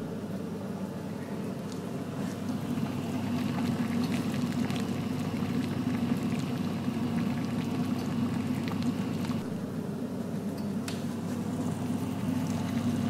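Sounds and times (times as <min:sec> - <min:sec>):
water boiling in a pot: 0:01.9 - 0:10.4, 0:11.2 - 0:13.0.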